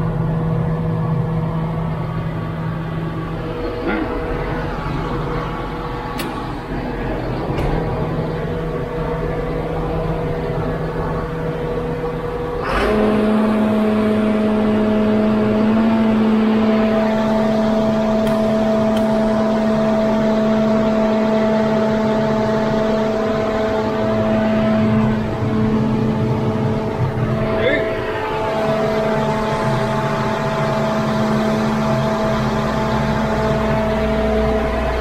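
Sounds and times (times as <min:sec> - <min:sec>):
tractor engine running: 0:00.0 - 0:35.0
click: 0:06.2 - 0:06.4.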